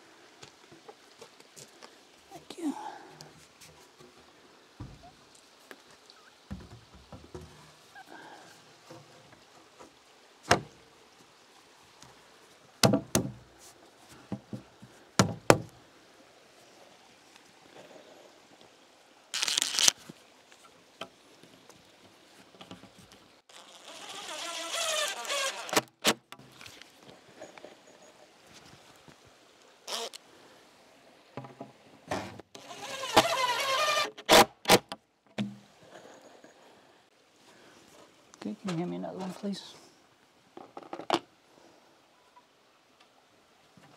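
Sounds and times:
knocks of metal and wood handled: 12.8s - 13.4s
cordless drill driving screws: 32.6s - 34.4s.

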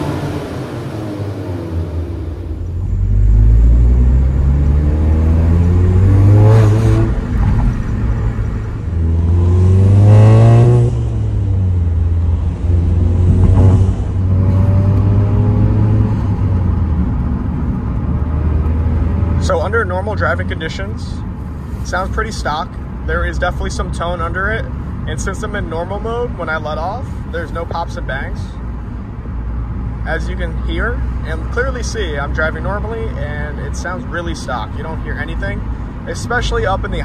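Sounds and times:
car engine accelerating: 0.0s - 20.5s.

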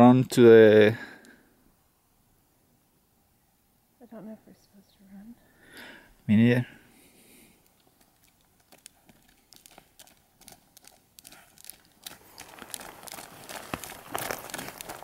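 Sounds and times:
hooves stepping on gravel: 7.2s - 15.0s.

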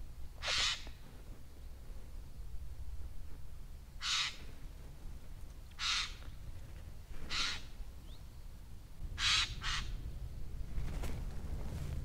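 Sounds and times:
crow calling harshly: 0.4s - 1.0s, 4.0s - 4.4s, 5.8s - 6.2s, 7.3s - 7.7s, 9.2s - 10.0s.

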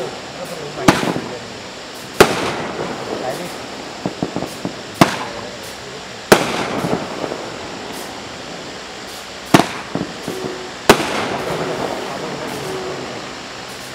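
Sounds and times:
loud firework bangs: 0.0s - 13.9s
firework pops and crackle: 0.5s - 1.4s, 2.0s - 8.2s, 9.0s - 12.8s.

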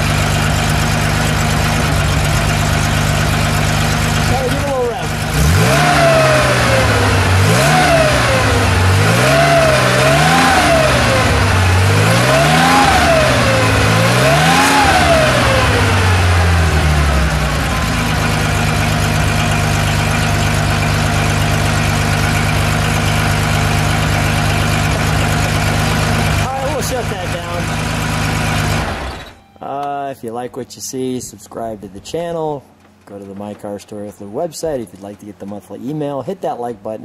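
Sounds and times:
car engine revving: 0.0s - 29.4s
car engine idling: 0.0s - 30.0s.

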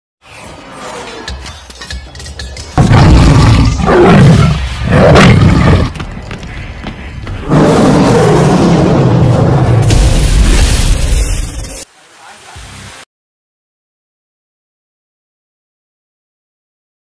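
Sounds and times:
tiger roaring: 2.8s - 6.0s, 7.4s - 9.8s.

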